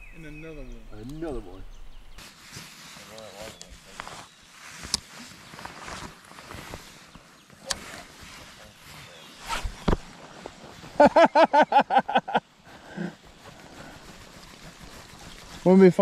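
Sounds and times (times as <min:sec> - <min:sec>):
rustling: 0:02.1 - 0:16.0
person laughing: 0:11.0 - 0:13.2.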